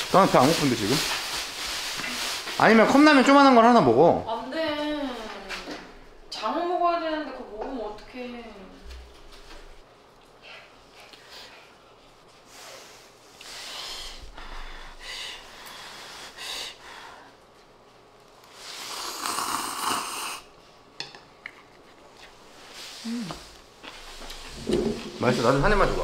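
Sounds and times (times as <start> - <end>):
person slurping noodles: 18.6 - 20.5.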